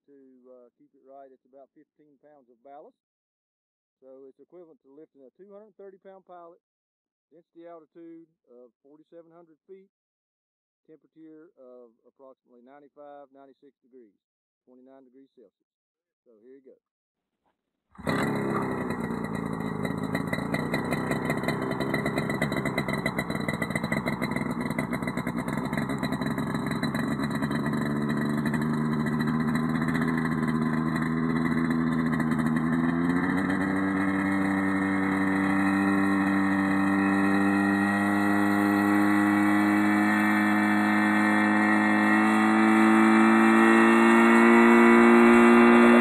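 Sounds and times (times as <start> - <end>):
two-stroke helicopter engine running: 18.0 - 46.0.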